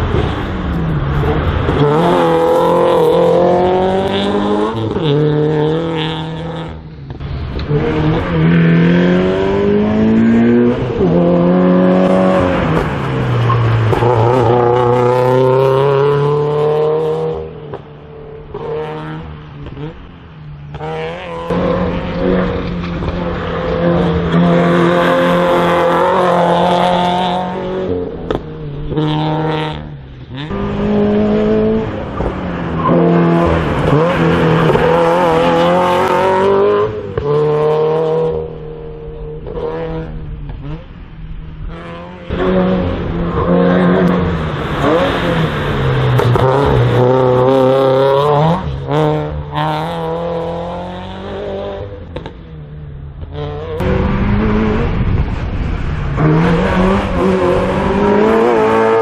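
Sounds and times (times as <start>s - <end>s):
race car engine accelerating: 0.0s - 20.1s, 20.7s - 41.0s, 41.6s - 59.0s.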